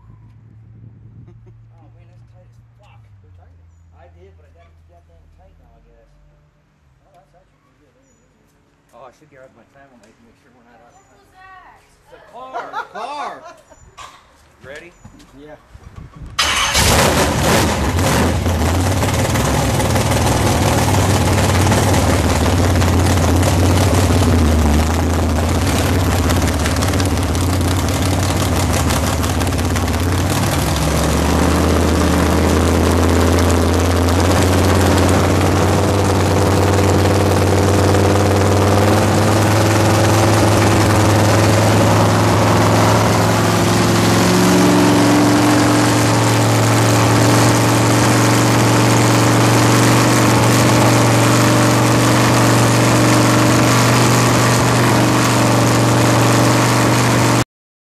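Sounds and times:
car engine idling: 16.4s - 57.4s.

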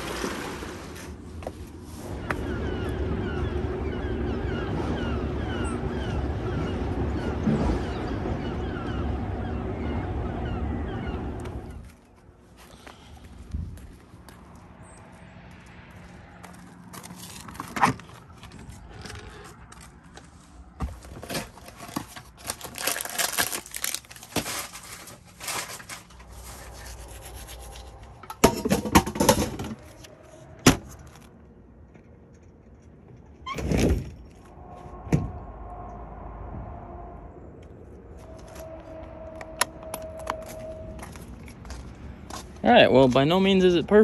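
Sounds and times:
long scraping rush: 34.4s - 41.9s.

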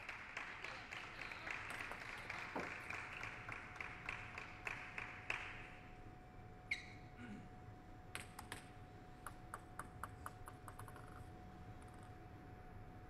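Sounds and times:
spectators clapping: 0.0s - 5.9s.

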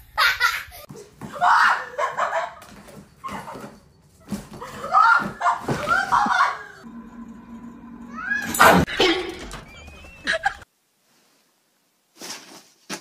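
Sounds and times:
people laughing and exclaiming: 1.3s - 3.6s, 4.6s - 6.9s, 8.4s - 10.6s.

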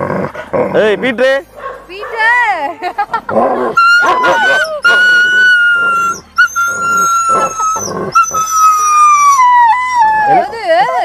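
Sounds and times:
dog whining: 3.6s - 11.0s
dog howling: 3.7s - 11.0s.

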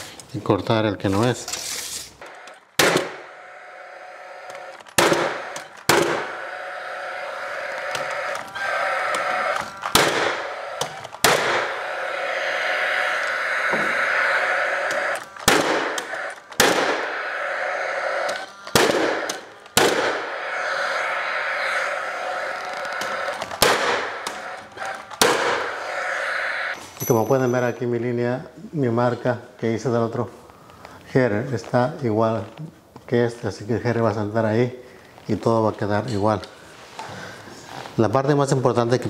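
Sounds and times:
steady background noise: 0.0s - 39.0s
nail gun shots: 2.8s - 3.2s, 4.8s - 6.3s, 9.8s - 11.7s, 15.1s - 17.2s, 18.6s - 20.3s, 23.5s - 25.7s.

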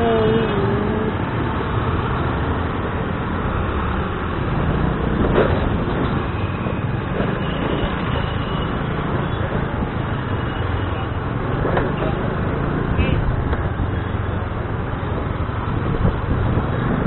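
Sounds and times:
scooter engine running: 0.0s - 1.3s
street traffic noise: 0.0s - 17.0s.

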